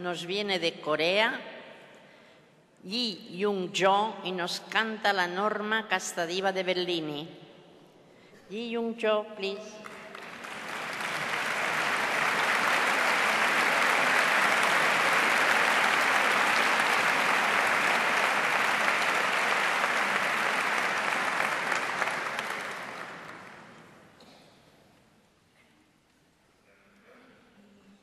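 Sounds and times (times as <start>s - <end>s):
audience applauding: 9.8s - 24.1s.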